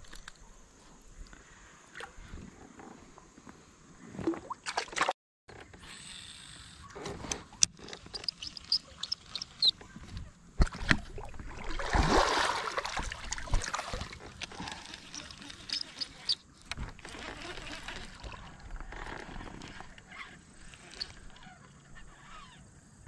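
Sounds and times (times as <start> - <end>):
water splashing around kayak: 7.1 - 21.5
wash of water: 10.7 - 15.8.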